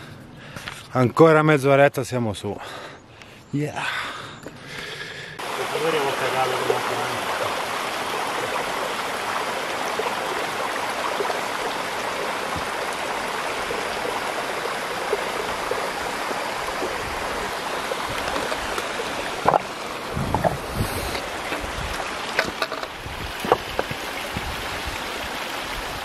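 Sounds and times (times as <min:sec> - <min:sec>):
stream rushing over rocks: 0:05.4 - 0:26.0.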